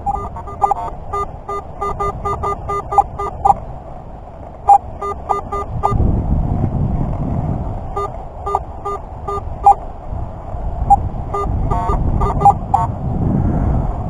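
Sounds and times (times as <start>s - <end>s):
metal detector beeps: 0.0s - 3.6s, 4.7s - 6.0s, 7.9s - 9.8s, 10.9s - 12.9s
wind rumble on microphone: 0.0s - 14.0s.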